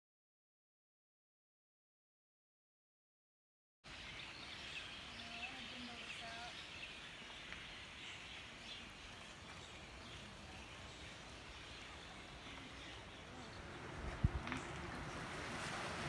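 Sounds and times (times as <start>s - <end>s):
bird chirps: 3.9s - 13.9s
steady forest hiss: 3.9s - 16.0s.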